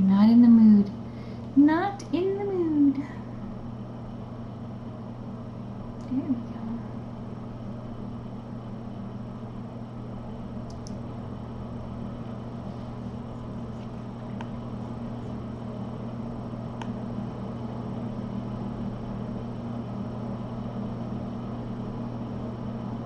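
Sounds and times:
low hum with hiss: 0.0s - 23.0s
faint clicks: 10.7s - 11.0s.

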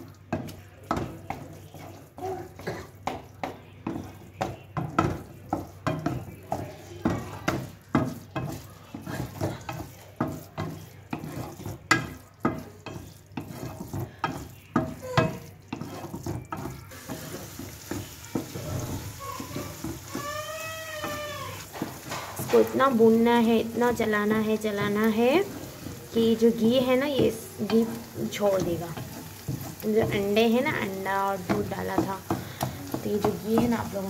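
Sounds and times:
metal spatula scraping pan: 0.3s - 34.0s.

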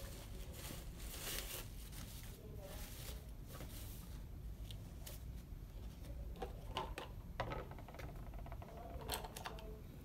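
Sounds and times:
rustling of supplies: 0.0s - 6.2s
low room hum: 0.0s - 10.0s.

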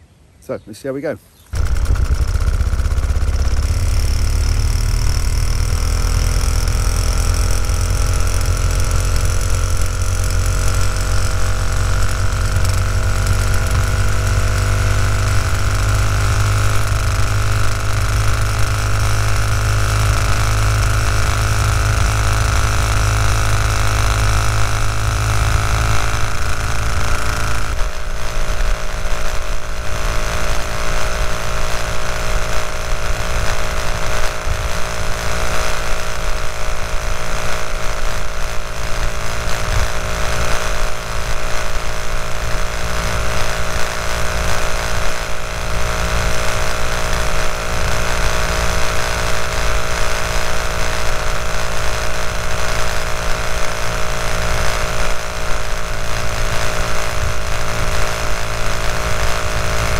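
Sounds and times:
wind and road noise: 1.4s - 59.9s
moped two-stroke engine running: 1.5s - 59.9s.

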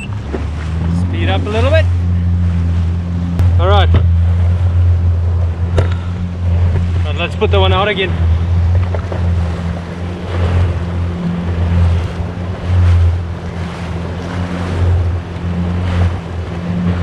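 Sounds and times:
wake water rushing: 0.0s - 17.0s
watercraft engine hum: 0.0s - 17.0s.

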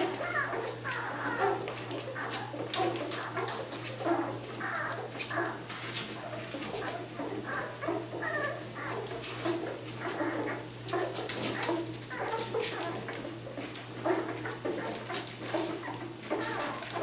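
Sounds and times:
puppies whimpering and squeaking: 0.0s - 17.0s.

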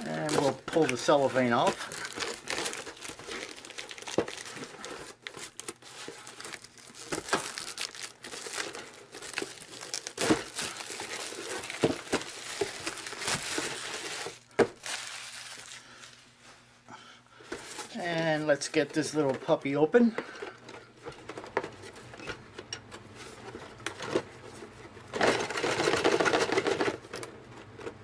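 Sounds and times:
cellophane crinkling: 0.0s - 16.6s
cellophane scrunched in hand: 1.6s - 16.2s.

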